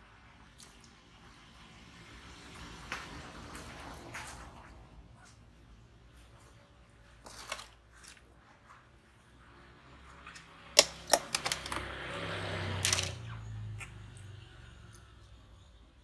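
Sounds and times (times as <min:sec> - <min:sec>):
plastic rustling: 0:07.2 - 0:08.4
plastic scraping: 0:10.8 - 0:11.9, 0:12.7 - 0:13.2.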